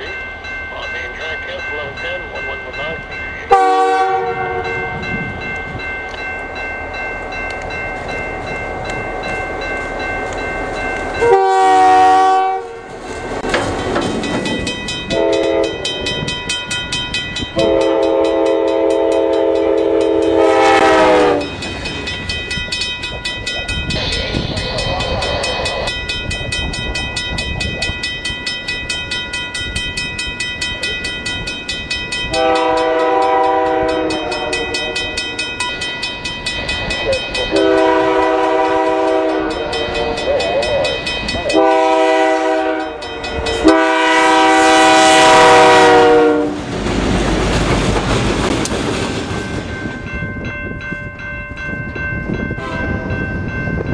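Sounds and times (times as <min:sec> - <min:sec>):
crossing bell ringing: 0:00.0 - 0:47.1, 0:49.2 - 0:53.9
freight train rumbling: 0:00.0 - 0:53.9
locomotive air horn blasts: 0:03.5 - 0:04.9, 0:11.2 - 0:12.8, 0:15.1 - 0:15.8, 0:17.6 - 0:21.5, 0:32.3 - 0:35.2, 0:37.5 - 0:40.2, 0:41.5 - 0:46.6, 0:52.6 - 0:53.0.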